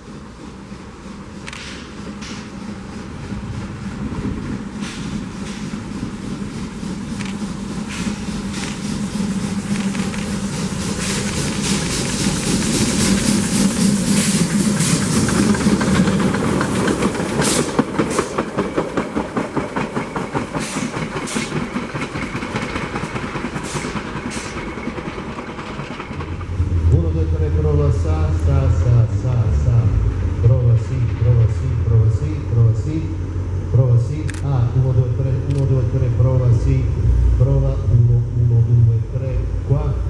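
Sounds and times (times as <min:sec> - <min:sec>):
train wheels clicking over rail joints: 0:00.0 - 0:29.4
steam locomotive exhaust beats: 0:00.0 - 0:40.0.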